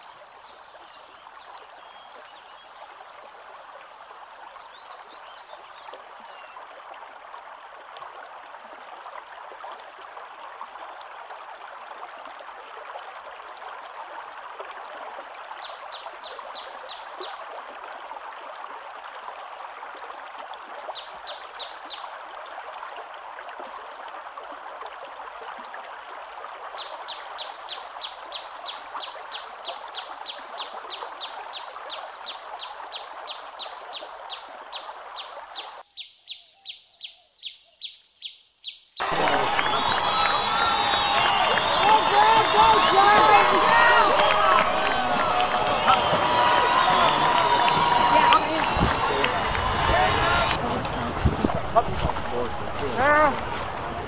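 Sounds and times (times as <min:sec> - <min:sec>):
river water rushing: 0:39.0 - 0:54.0.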